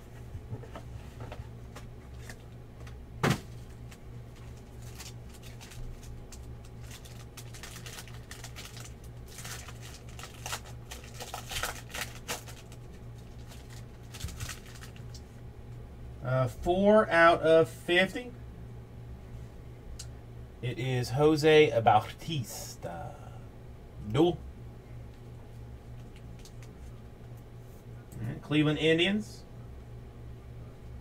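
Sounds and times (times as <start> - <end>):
steady low hum: 0.0 - 31.0
foil wrapper crinkling: 3.5 - 15.2.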